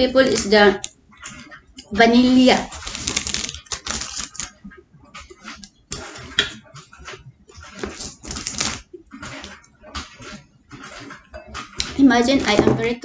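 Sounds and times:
cardboard packs rustling: 2.7s - 4.6s, 7.6s - 9.6s.

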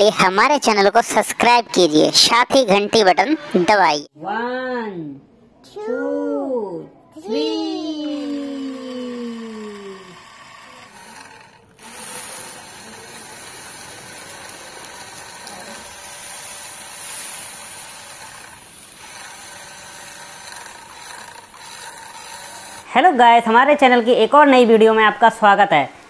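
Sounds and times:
toy car motor and gears whirring: 8.1s - 22.9s.

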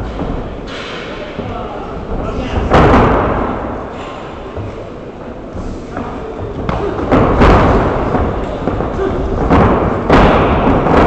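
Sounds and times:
thuds of kicks and punches: 6.5s - 11.0s.

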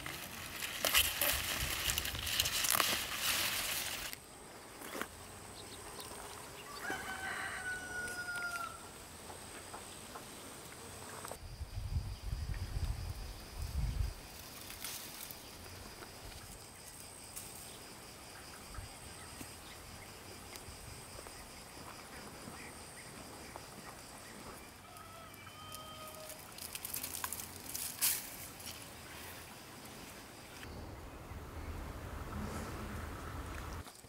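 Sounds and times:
leaves and dry stalks rustling: 0.0s - 9.0s, 12.7s - 18.1s, 19.3s - 30.8s.

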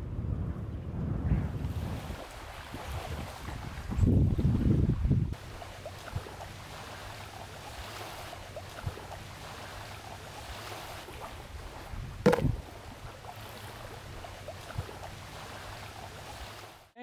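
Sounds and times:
wind: 0.0s - 17.0s
water lapping: 1.6s - 17.0s
loud thump: 12.3s - 12.6s.

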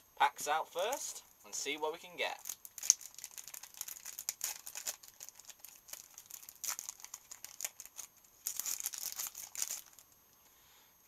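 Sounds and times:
foil wrapper crinkling and tearing: 2.3s - 10.1s.

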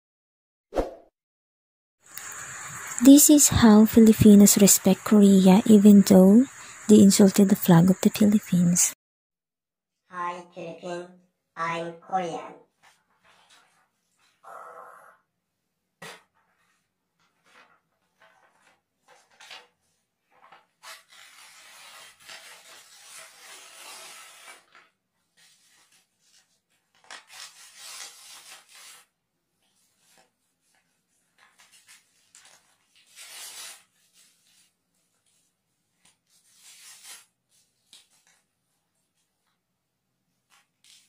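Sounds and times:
paper rustling: 12.8s - 14.3s, 16.0s - 39.6s, 40.4s - 41.0s
paper tearing: 20.5s - 29.2s, 31.4s - 34.7s, 36.0s - 38.4s, 40.5s - 41.0s.

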